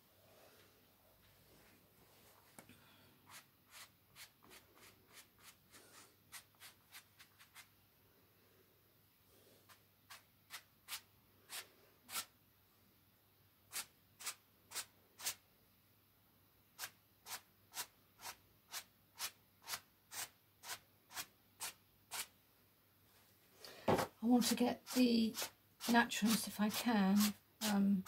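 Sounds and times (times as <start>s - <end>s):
paintbrush strokes on canvas: 3.2s - 7.7s.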